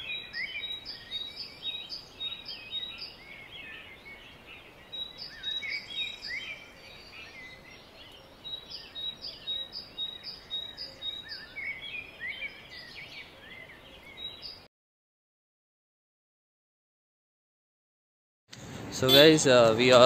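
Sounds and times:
birds singing and calling: 0.0 - 14.7.

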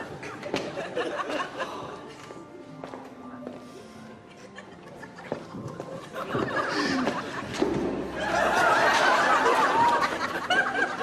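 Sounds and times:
audience laughing: 0.6 - 1.9, 4.4 - 11.0.

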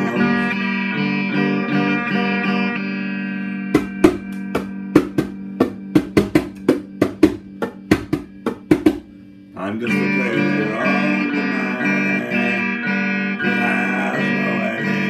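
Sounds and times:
electric guitar chord: 0.0 - 15.0
sharp percussive guitar hits: 3.7 - 9.2.

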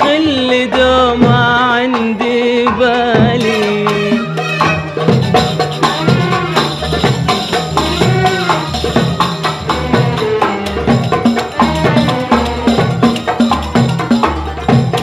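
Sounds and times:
drums: 0.0 - 15.0
hand percussion beat: 0.0 - 15.0
tambourine: 4.4 - 15.0
violin section playing melody: 9.6 - 10.9, 11.5 - 13.1.

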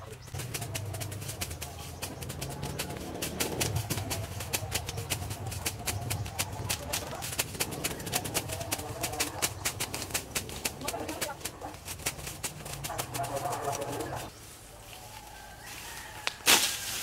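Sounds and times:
machete swishing through grass: 15.7 - 17.0.

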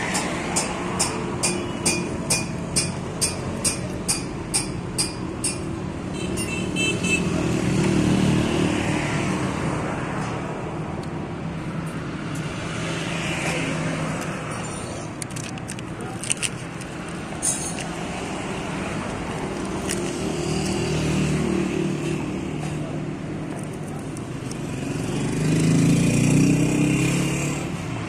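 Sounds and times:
vehicle engine passing: 24.4 - 28.0.

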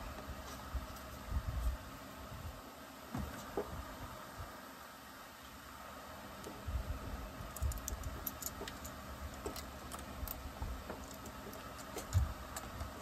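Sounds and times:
hands handling small parts and tools: 7.5 - 13.0.

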